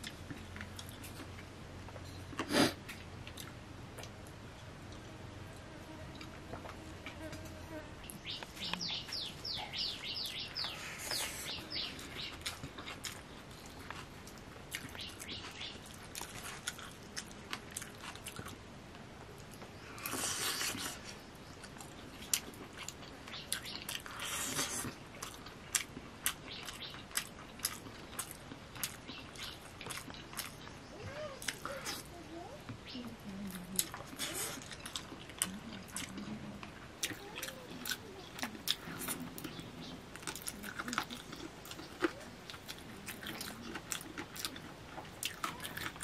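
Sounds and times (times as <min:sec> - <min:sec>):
smacking clicks of chewing: 0:00.0 - 0:05.1, 0:08.1 - 0:21.0, 0:21.6 - 0:46.0
bird chirping: 0:08.0 - 0:12.5, 0:14.8 - 0:15.9, 0:26.4 - 0:27.1, 0:32.8 - 0:33.2.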